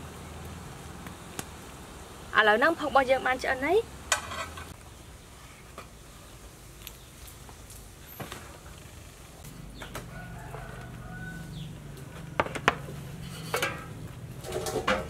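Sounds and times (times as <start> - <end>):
rooster crowing: 9.8 - 11.9
metal steamer pots clanking: 12.4 - 15.0.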